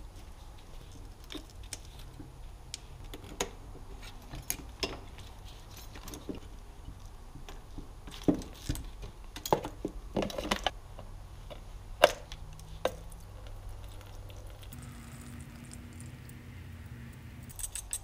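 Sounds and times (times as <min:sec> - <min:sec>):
low steady hum: 0:10.8 - 0:18.0.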